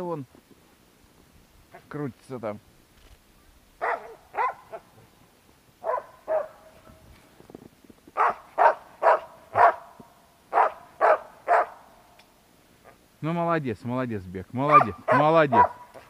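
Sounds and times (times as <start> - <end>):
dog barking: 3.8 - 4.9, 5.8 - 6.8, 8.2 - 9.9, 10.5 - 11.8, 14.7 - 16.0.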